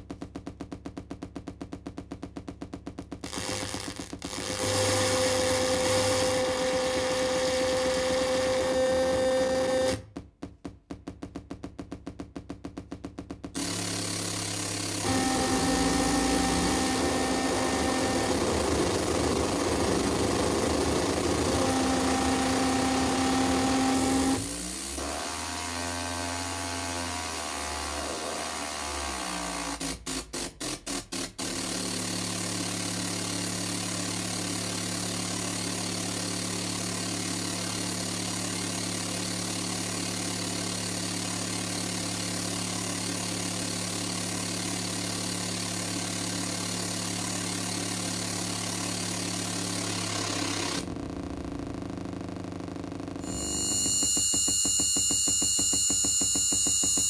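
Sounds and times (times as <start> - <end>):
electronic noise music: 12.7 - 24.6, 49.3 - 57.0.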